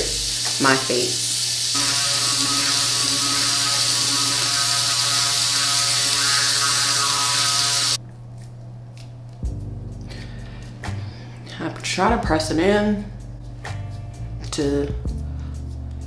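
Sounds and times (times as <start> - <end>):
electric toothbrush buzzing: 0.0 - 8.0.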